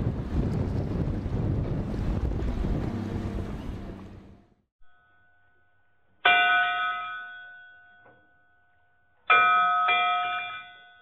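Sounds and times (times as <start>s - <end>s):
bell ringing: 4.8s - 11.0s.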